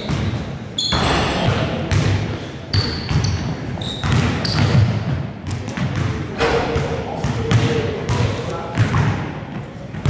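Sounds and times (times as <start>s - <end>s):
basketballs bouncing on wooden floor: 0.0s - 2.2s, 2.8s - 9.2s
short high squeaks: 0.8s - 1.1s, 2.7s - 4.7s.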